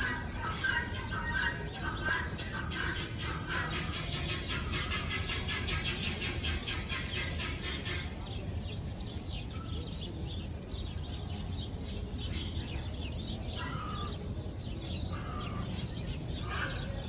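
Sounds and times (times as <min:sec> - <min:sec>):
turkey harsh calls: 0:00.0 - 0:08.2
turkeys chirping: 0:00.0 - 0:08.6, 0:11.8 - 0:17.0.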